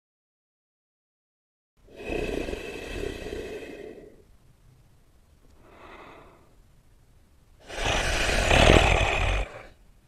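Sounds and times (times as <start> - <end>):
animal breathing through nose: 1.9 - 4.2, 7.6 - 9.8
animal snorting exhale: 1.9 - 4.2, 7.6 - 9.8.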